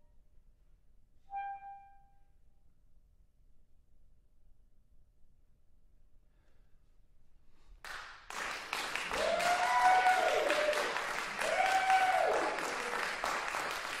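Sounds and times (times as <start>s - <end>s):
audience applauding: 7.8s - 14.0s
cheering calls: 8.8s - 14.0s.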